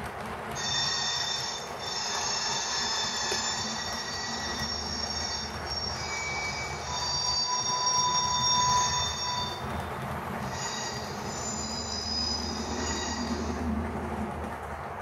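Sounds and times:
model train rumbling on track: 0.0 - 15.0
railway wheel squeal from speaker: 0.5 - 13.9.

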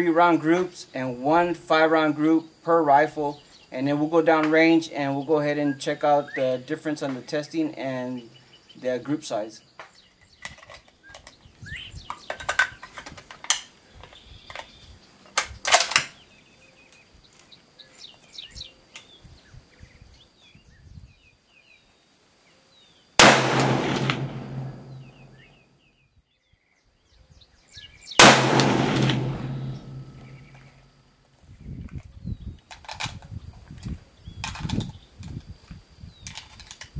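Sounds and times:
birds chirping: 3.2 - 12.9, 16.1 - 30.8
clicks and clacks from handling: 9.8 - 11.4, 12.1 - 14.7, 32.7 - 35.4, 36.2 - 36.9
rifle shots: 23.2 - 25.4, 28.2 - 30.8.

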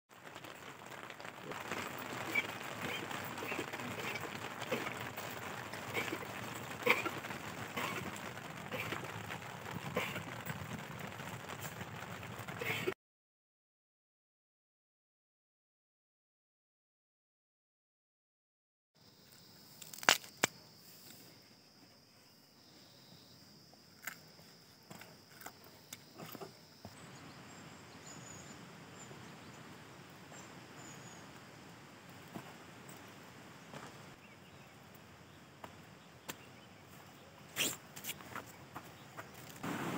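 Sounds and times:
footsteps on stone paving: 0.1 - 12.9, 32.3 - 34.2, 35.6 - 39.9
rain pattering on tent fabric: 0.1 - 13.0, 19.8 - 20.5, 27.0 - 39.9
outdoor hiss: 19.0 - 23.4, 25.7 - 39.9.

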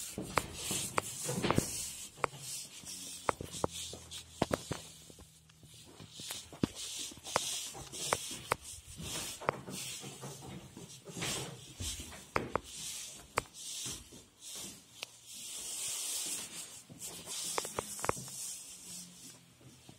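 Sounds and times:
footsteps on hard floors: 0.0 - 18.6
camera handling rubbing: 0.3 - 5.2, 6.1 - 9.5, 17.4 - 18.4.

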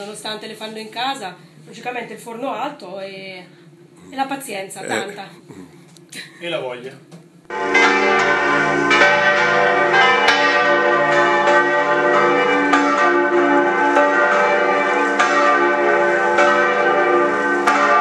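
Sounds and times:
church bells ringing: 7.5 - 18.0.

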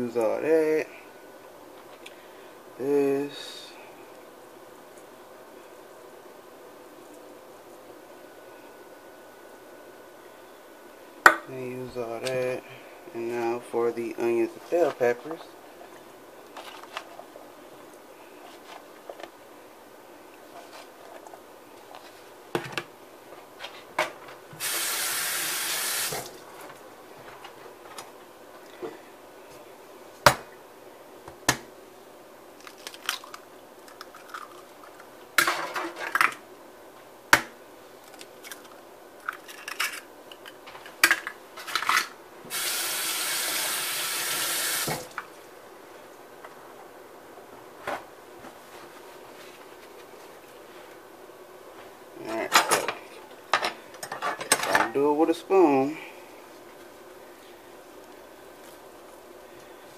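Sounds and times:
kitchen tap running: 24.6 - 26.3, 42.5 - 45.2
egg cracking: 32.6 - 35.1.

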